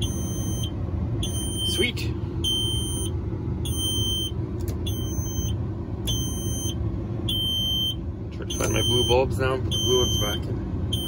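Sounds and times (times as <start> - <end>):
warning buzzer beeping: 0.0 - 3.1, 3.7 - 11.0.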